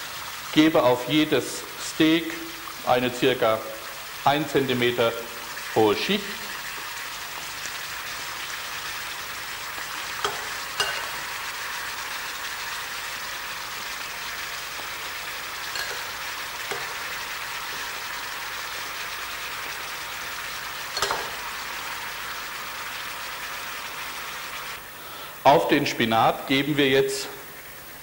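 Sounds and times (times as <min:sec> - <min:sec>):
steaks sizzling in oil: 0:00.0 - 0:25.0
spoon clicking against pan: 0:10.2 - 0:11.2, 0:15.8 - 0:17.1, 0:21.0 - 0:21.4.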